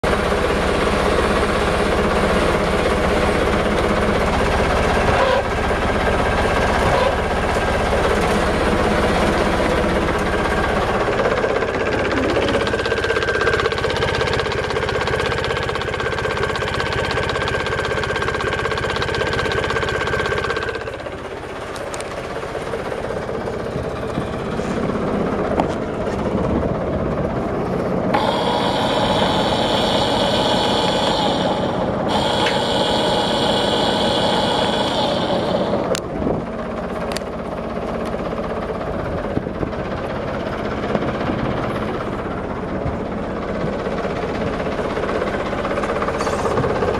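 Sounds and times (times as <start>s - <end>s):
anchor winch whine: 0.0s - 46.9s
boat engine running: 0.0s - 46.9s.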